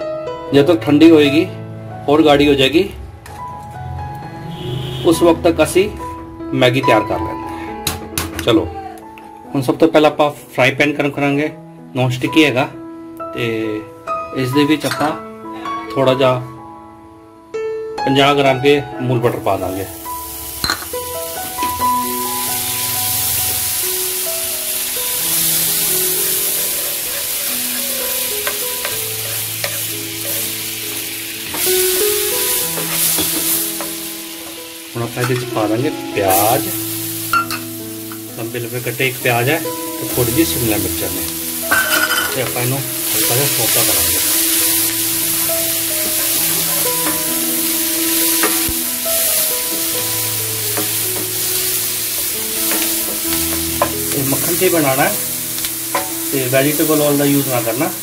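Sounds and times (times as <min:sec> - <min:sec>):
butter sizzling in frying pan: 0:19.2 - 0:58.0.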